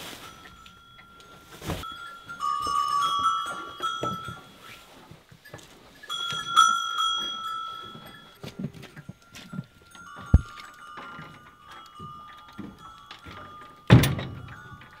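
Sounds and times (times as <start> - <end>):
soft low knocks: 8.7 - 15.0.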